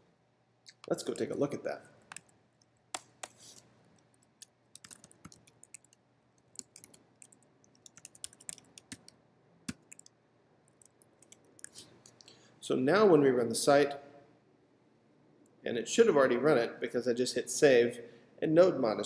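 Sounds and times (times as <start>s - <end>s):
keyboard typing clicks: 4.4s - 10.1s.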